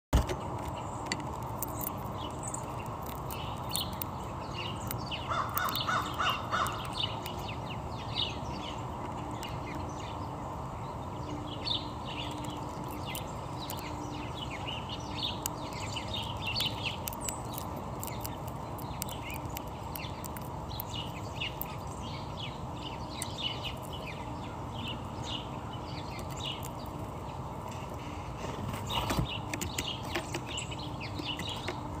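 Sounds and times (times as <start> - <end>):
low background noise: 0.2 - 32.0
songbirds chirping: 0.2 - 32.0
crow cawing: 5.3 - 6.8.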